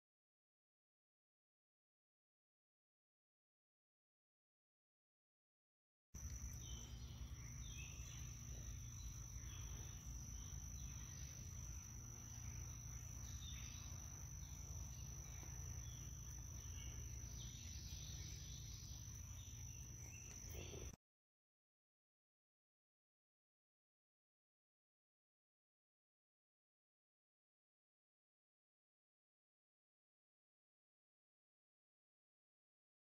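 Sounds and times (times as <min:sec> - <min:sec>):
high-pitched insect trill: 0:06.2 - 0:21.0.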